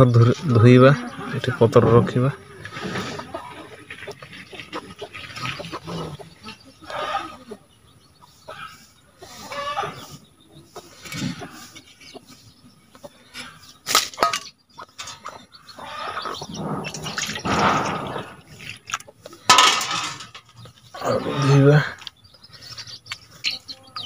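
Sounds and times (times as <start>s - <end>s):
metal plate clink: 13.9s - 15.3s, 19.5s - 20.5s.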